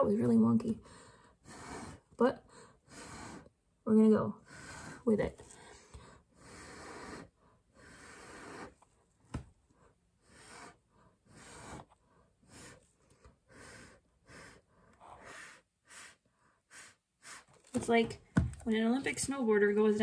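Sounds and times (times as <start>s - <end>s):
breath puffs through straw: 13.5s - 17.6s.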